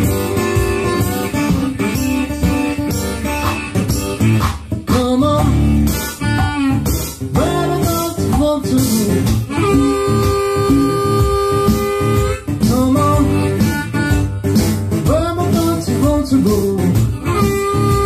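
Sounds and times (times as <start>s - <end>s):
harmonica: 0.0s - 4.4s, 5.6s - 15.8s, 16.8s - 18.0s
acoustic guitar: 0.0s - 18.0s
stomp-box foot drum beat: 0.0s - 18.0s.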